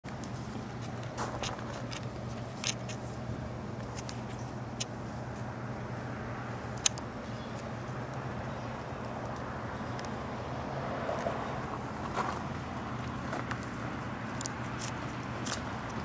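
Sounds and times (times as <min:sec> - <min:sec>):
steady low hum: 0:00.1 - 0:16.0
sharp clicks: 0:06.7 - 0:08.2.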